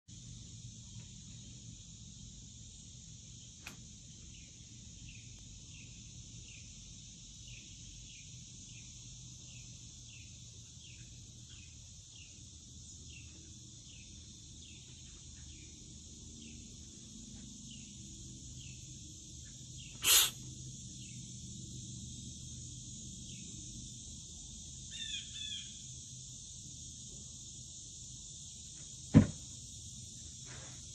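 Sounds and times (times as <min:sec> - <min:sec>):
high insect drone: 0:00.1 - 0:30.9
harsh bird calls: 0:19.8 - 0:20.4
bird chirping: 0:24.8 - 0:25.8.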